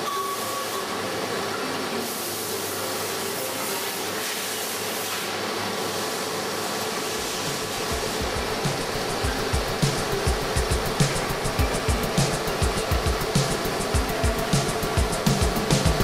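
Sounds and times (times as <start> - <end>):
laser welding machine hissing: 0.0 - 16.0.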